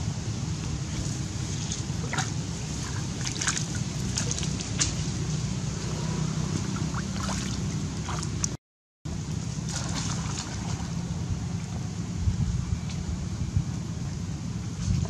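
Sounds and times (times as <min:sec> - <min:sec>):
steady low rumble: 0:00.0 - 0:15.0
water splashing and sloshing: 0:00.4 - 0:11.8, 0:14.7 - 0:15.0.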